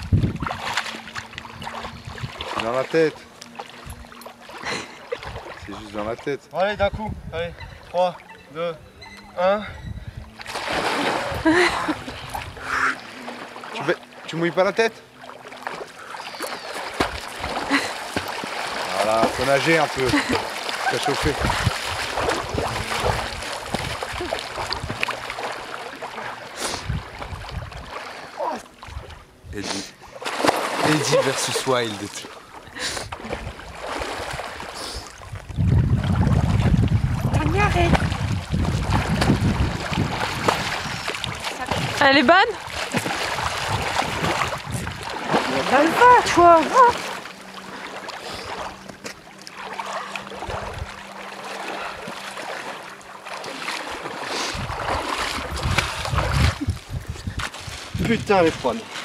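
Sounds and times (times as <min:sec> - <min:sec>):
wind rumble on microphone: 0:00.0 - 0:02.6, 0:06.7 - 0:07.9, 0:08.8 - 0:12.9, 0:21.2 - 0:25.3, 0:26.7 - 0:28.0, 0:33.0 - 0:46.9, 0:50.4 - 0:51.0, 0:54.4 - 0:58.9
water splashing and sloshing: 0:00.0 - 0:59.0.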